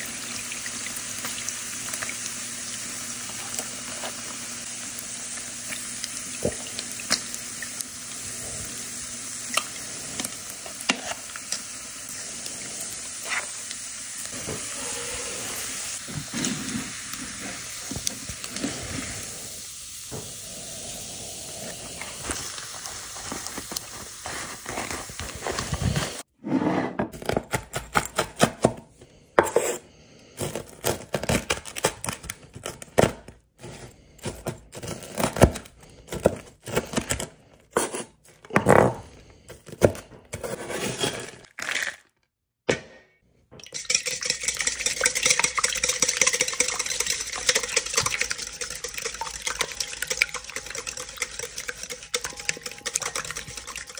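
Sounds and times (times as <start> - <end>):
food sizzling in a pan: 0.0 - 26.3.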